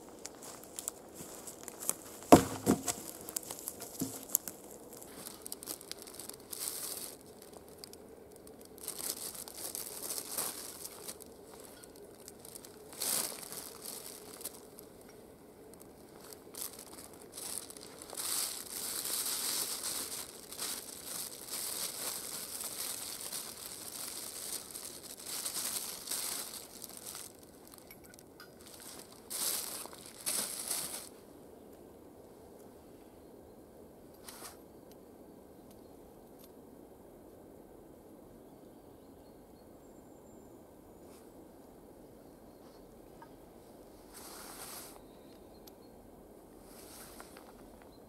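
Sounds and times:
plastic bag crinkling: 0.3s - 31.1s.

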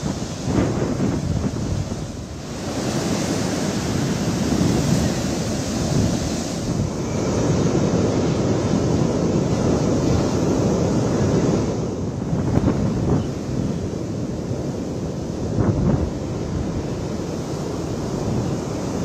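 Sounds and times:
waves breaking over rocks: 0.0s - 10.6s
wind buffeting microphone: 0.0s - 19.0s.

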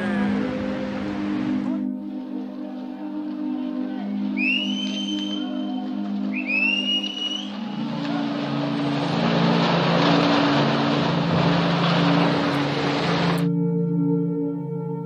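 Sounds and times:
background music with held tones: 0.0s - 15.0s
rockfall crashing into water: 8.2s - 13.4s.

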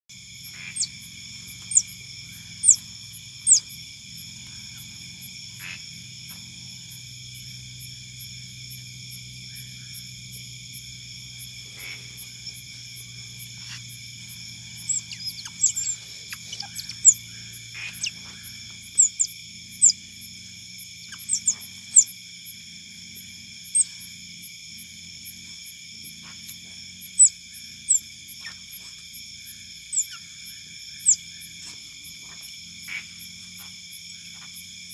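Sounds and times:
night insects chorus: 0.1s - 34.9s
otters squeaking: 0.6s - 3.7s, 11.7s - 20.0s, 21.1s - 22.1s.

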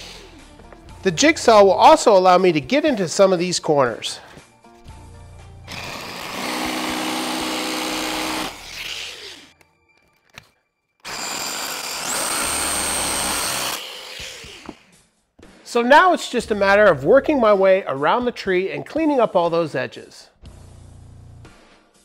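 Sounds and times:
jigsaw cutting plywood: 5.7s - 9.5s, 11.0s - 14.9s.

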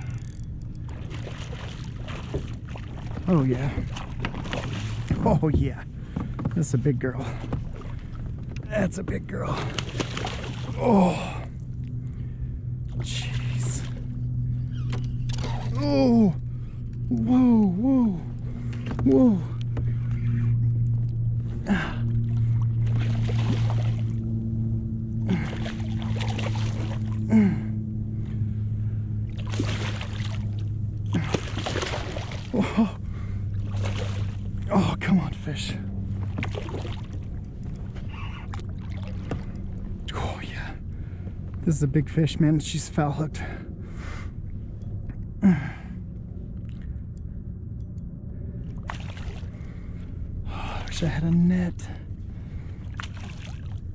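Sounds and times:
steady low hum: 0.0s - 53.9s
steady low rumble: 0.0s - 53.9s
fish splashing in water: 9.7s - 10.8s, 22.7s - 24.2s, 25.3s - 27.2s, 29.4s - 32.8s, 33.6s - 34.5s, 36.3s - 37.3s, 48.8s - 49.6s, 52.9s - 53.8s.

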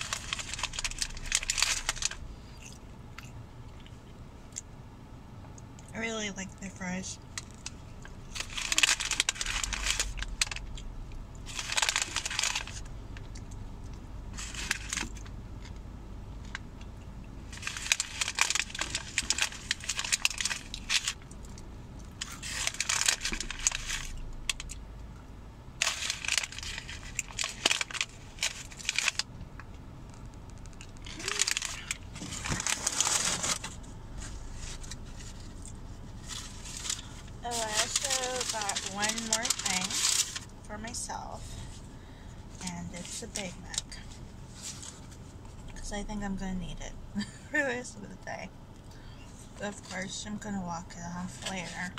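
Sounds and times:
paper bag rustling and crinkling: 0.0s - 2.2s, 7.4s - 12.9s, 14.3s - 15.3s, 17.5s - 21.4s, 22.2s - 24.7s, 25.8s - 29.3s, 30.6s - 41.8s, 42.5s - 43.9s, 44.5s - 45.8s, 51.3s - 51.9s.

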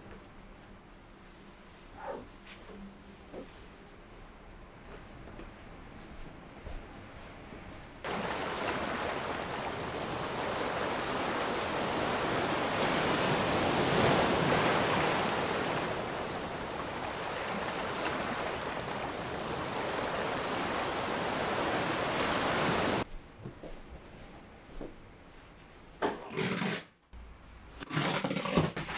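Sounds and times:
rushing sea wind: 8.0s - 23.0s
waves: 8.0s - 23.1s.

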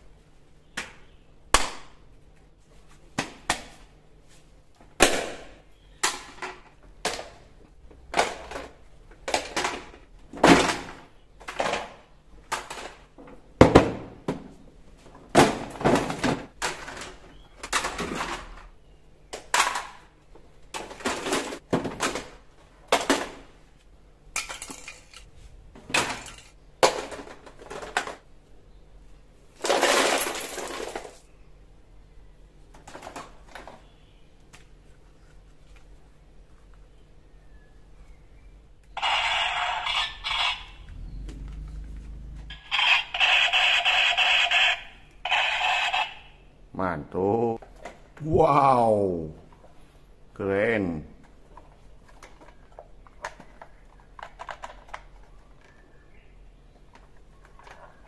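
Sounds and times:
plastic toys clattering on tile: 8.1s - 13.1s, 15.8s - 18.7s, 19.4s - 20.1s, 24.3s - 25.3s, 25.9s - 28.2s, 29.6s - 31.3s, 32.7s - 33.8s, 51.2s - 55.9s, 56.8s - 58.0s.

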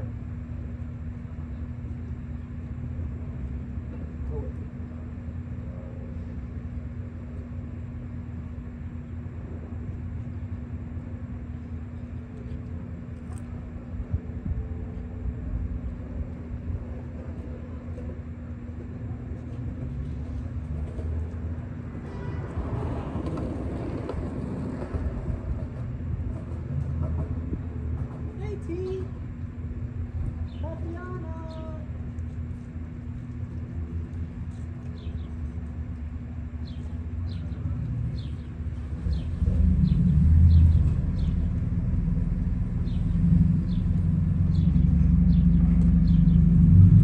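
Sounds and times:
constant hum: 0.0s - 47.0s
low outdoor rumble: 0.0s - 47.0s.

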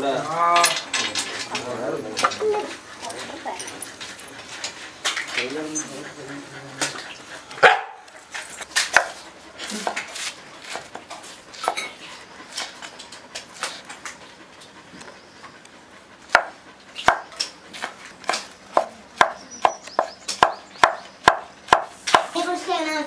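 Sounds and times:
knife chopping on wooden board: 8.9s - 9.2s, 16.3s - 22.3s.

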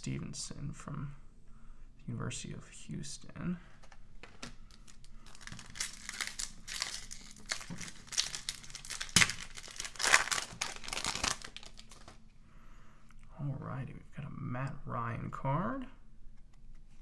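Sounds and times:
foil pack crinkling: 4.6s - 12.2s
foil ripping: 4.8s - 12.2s.

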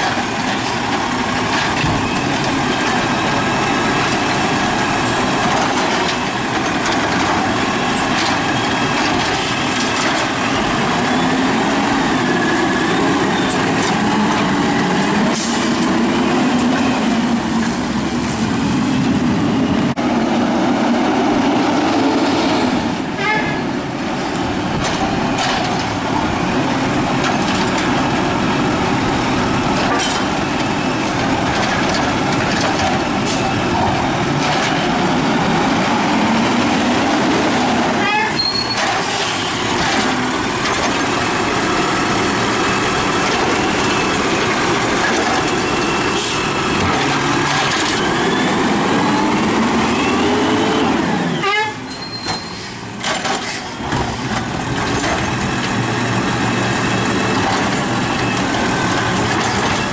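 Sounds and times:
garbage truck diesel engine: 0.0s - 59.9s
air brakes hissing: 15.3s - 15.8s, 46.0s - 46.6s, 51.2s - 54.4s.

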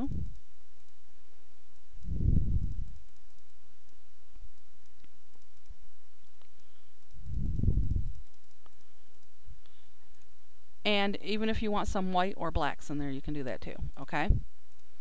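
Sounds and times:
microphone hiss: 0.0s - 15.0s
short low rumbles: 2.0s - 2.9s.

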